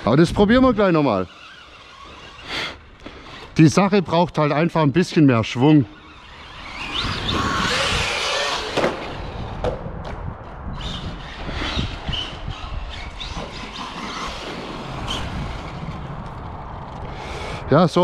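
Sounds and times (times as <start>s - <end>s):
tyres on dirt: 0.0s - 4.4s, 5.1s - 17.3s
rc truck electric motor: 0.2s - 3.7s, 5.9s - 9.7s, 10.7s - 17.6s.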